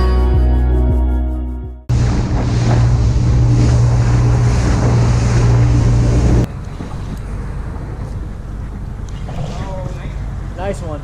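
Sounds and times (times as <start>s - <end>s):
music: 0.0s - 1.9s
rushing water: 1.9s - 8.9s
motorboat engine hum: 1.9s - 11.0s
wind buffeting microphone: 1.9s - 11.0s.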